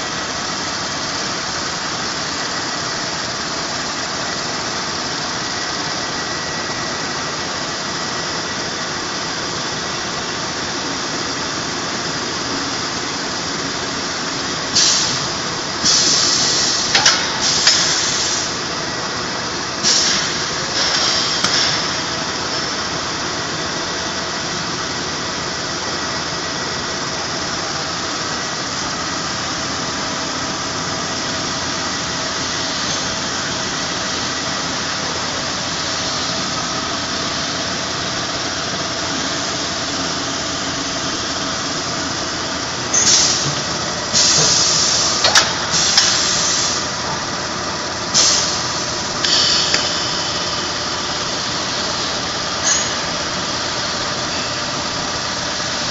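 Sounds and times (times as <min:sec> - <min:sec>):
machine running: 0:00.0 - 0:55.9
sharp click: 0:49.2 - 0:50.1.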